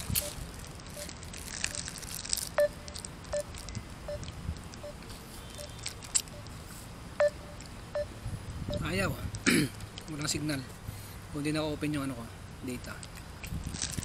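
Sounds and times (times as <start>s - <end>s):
phone short electronic beeps: 4.8s - 6.4s, 8.7s - 8.9s.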